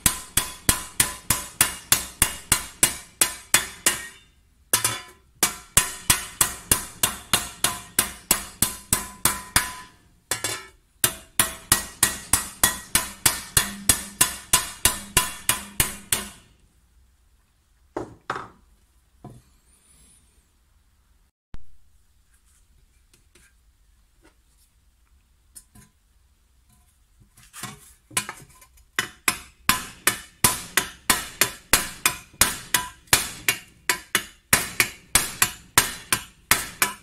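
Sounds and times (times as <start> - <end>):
hammer striking copper tray: 0.0 - 16.5, 29.0 - 37.0.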